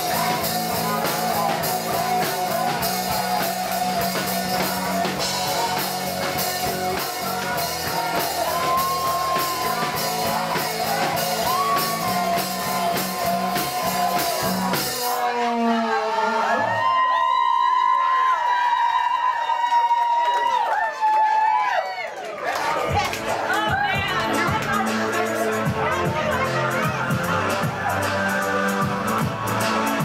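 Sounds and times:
electric guitars: 0.0 - 15.2
drum beats: 0.0 - 15.4, 22.4 - 30.0
person singing: 0.0 - 16.7
bass guitar: 0.0 - 16.9, 22.8 - 30.0.

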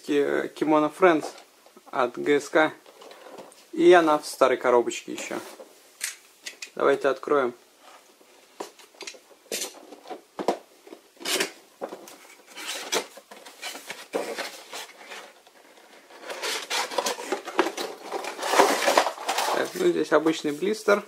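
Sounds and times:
packaging scraping and rubbing: 11.2 - 20.8
cardboard box being opened: 16.0 - 19.8.

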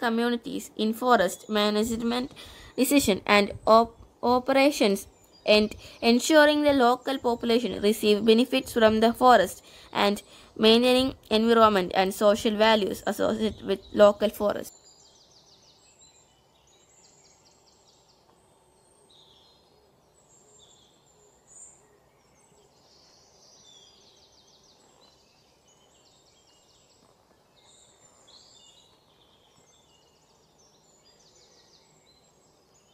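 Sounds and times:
low outdoor hiss: 0.0 - 32.9
small birds chirping and trilling: 0.0 - 32.9.

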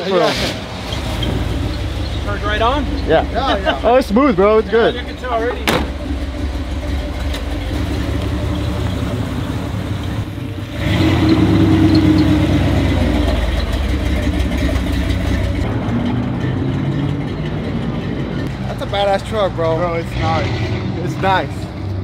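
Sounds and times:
pickup truck engine revving: 0.2 - 22.0.

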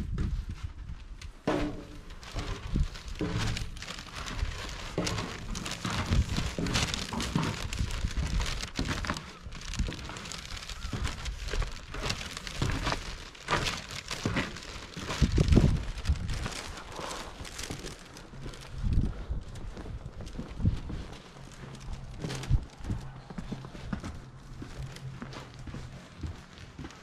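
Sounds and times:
footsteps crunching in snow: 0.0 - 27.0
thump: 1.5 - 2.0.

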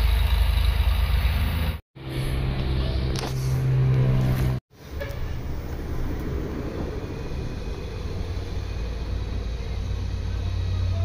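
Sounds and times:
engine running with low rumble: 0.0 - 11.0.

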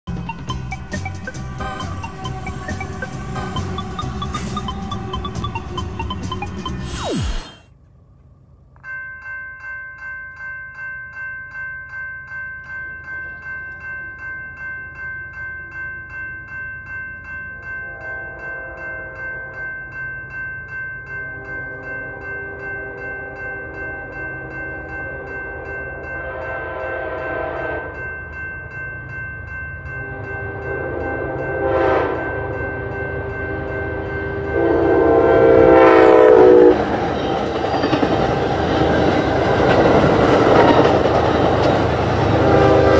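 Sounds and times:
railroad crossing bells ringing: 0.1 - 6.9, 8.8 - 42.9
train horn blasts: 17.9 - 19.2, 25.6 - 28.0, 30.1 - 36.9, 42.2 - 42.9.

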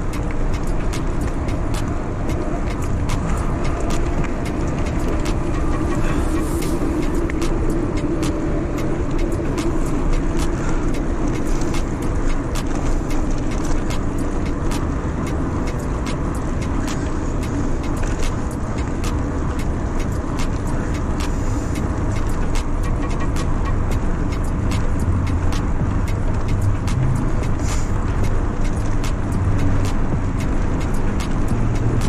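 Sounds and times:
road traffic rumble: 0.0 - 32.0.

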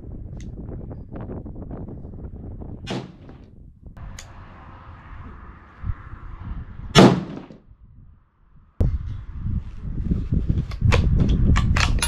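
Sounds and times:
rifle shot: 2.9 - 3.4, 7.0 - 7.6.

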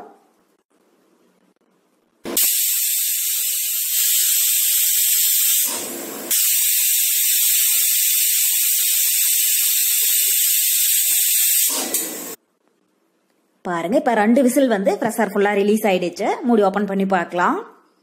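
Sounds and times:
pressure cooker steam hissing: 2.3 - 12.4.

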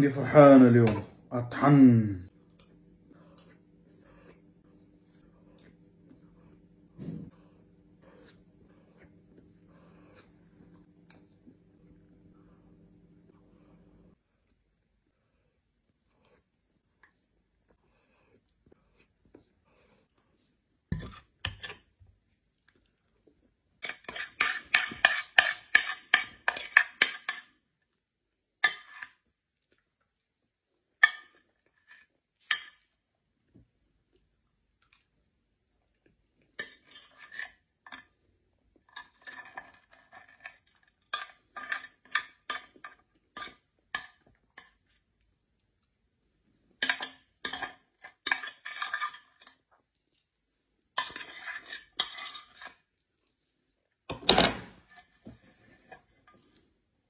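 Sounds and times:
metal spoon scraping glass dish: 51.0 - 52.8.

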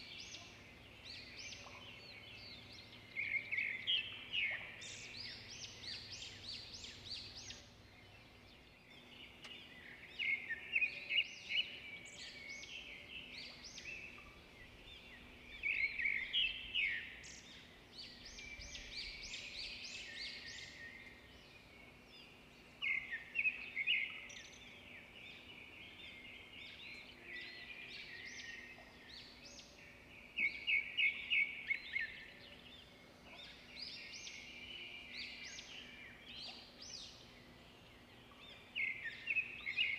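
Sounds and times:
birds chirping and twittering: 0.0 - 39.9
faint steady hum: 0.0 - 39.9.

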